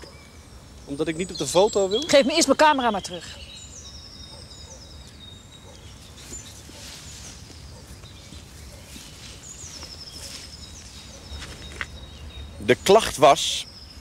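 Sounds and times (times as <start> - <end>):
bird singing high notes: 0.0 - 6.6.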